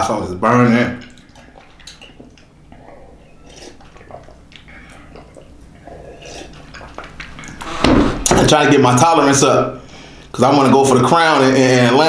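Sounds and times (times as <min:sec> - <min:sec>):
man gulping and swallowing: 0:01.0 - 0:08.4.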